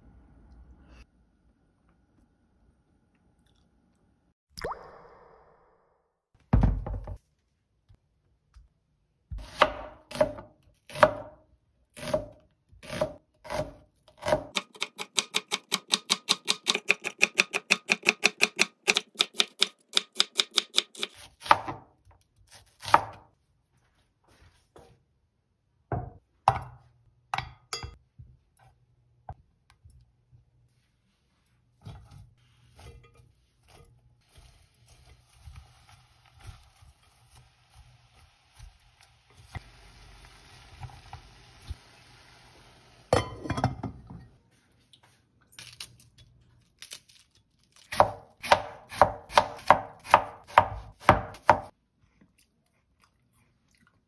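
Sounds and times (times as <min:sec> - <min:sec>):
knife slicing onion on board: 0:09.3 - 0:11.4, 0:12.0 - 0:23.3, 0:47.9 - 0:51.8.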